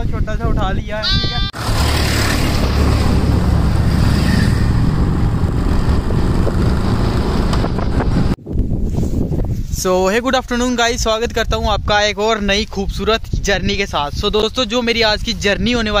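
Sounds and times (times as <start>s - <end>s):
vehicle rumble and air rush: 1.5s - 9.7s.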